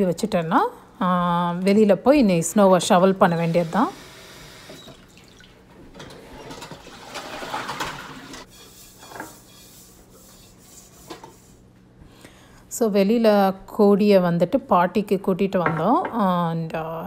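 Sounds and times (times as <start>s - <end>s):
tap water running: 3.3s - 8.4s.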